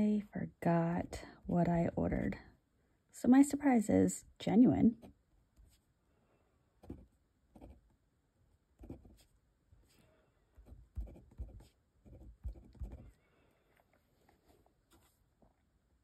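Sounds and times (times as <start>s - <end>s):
pen nib scratching on paper: 6.8s - 7.9s, 10.6s - 13.2s.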